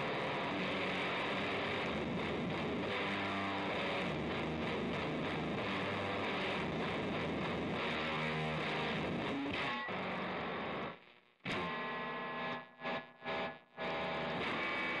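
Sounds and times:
fuzz electric guitar: 0.0s - 15.0s.

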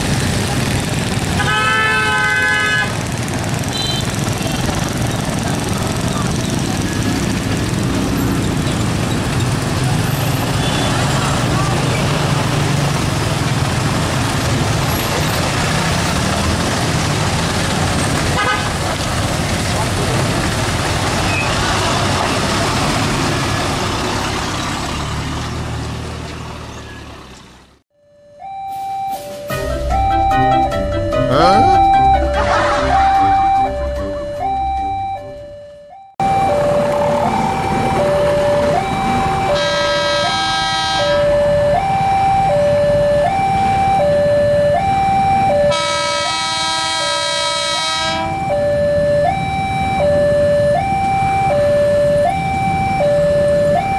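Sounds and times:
road traffic noise: 0.0s - 53.9s
truck engines running: 0.0s - 53.9s
train horn: 1.4s - 2.9s, 18.4s - 18.7s, 39.5s - 41.3s, 45.7s - 48.4s
short high-pitched tone: 28.0s - 35.3s
level-crossing two-tone alarm: 28.0s - 53.9s.

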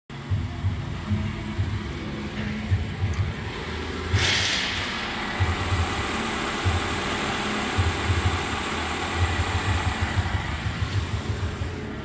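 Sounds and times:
car engine idling: 0.1s - 12.0s.

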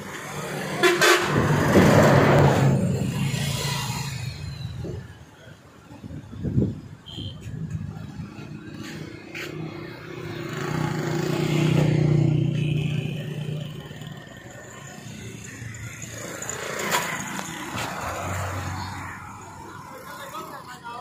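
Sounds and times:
vehicle engine hum passing: 7.6s - 20.6s.

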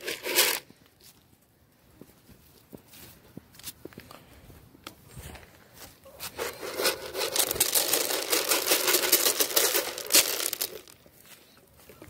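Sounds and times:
grain pouring and rattling: 0.0s - 0.6s, 6.4s - 11.0s.

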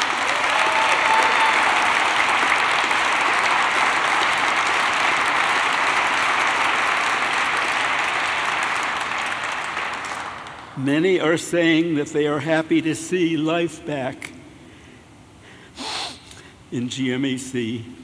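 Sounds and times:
large audience applauding: 0.0s - 10.8s.

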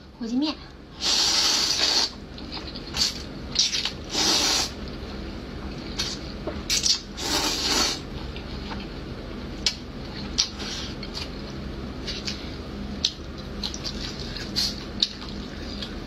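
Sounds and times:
person slurping noodles: 1.0s - 2.1s, 4.1s - 4.7s, 7.2s - 8.0s
chewing and mouth clicks: 13.0s - 16.0s.

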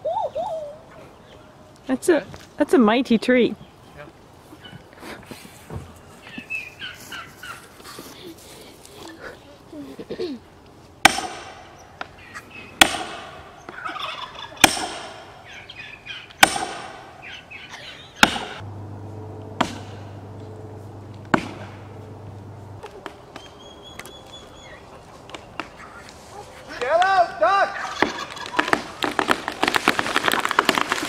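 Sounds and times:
axe chopping tree trunk: 11.0s - 11.6s, 12.8s - 13.4s, 14.6s - 15.3s, 16.4s - 17.0s, 18.2s - 18.6s, 19.2s - 22.8s
fowl calling: 13.7s - 14.7s.

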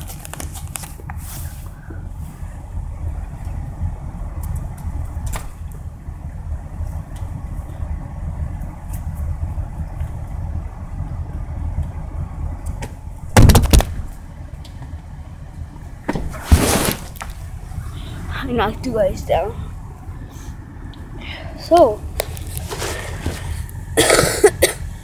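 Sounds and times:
car engine idling: 0.0s - 25.0s
loud thump: 13.3s - 14.1s, 16.0s - 17.0s.

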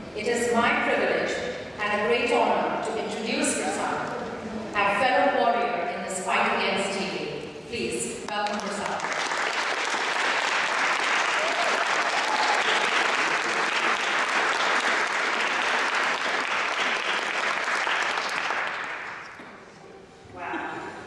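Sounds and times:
audience applauding: 8.4s - 19.4s.

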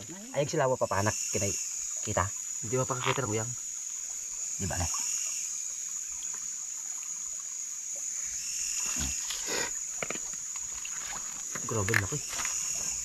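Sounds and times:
night insects chorus: 0.0s - 13.0s.

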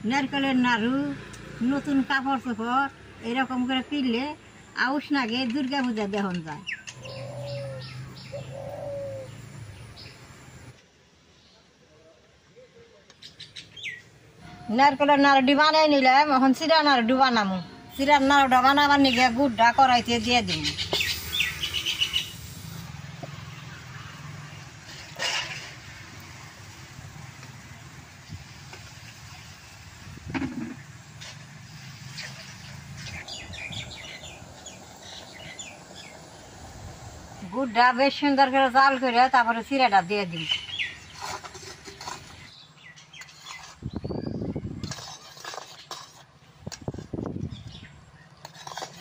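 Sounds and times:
metal spatula scraping a pan: 40.9s - 42.6s, 43.2s - 44.0s, 44.8s - 47.2s, 48.4s - 49.0s.

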